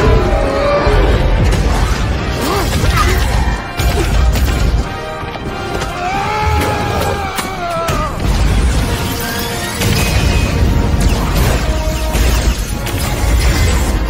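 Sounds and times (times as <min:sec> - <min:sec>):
soundtrack music: 0:00.0 - 0:14.0
explosions and impacts: 0:01.0 - 0:05.0, 0:07.9 - 0:14.0.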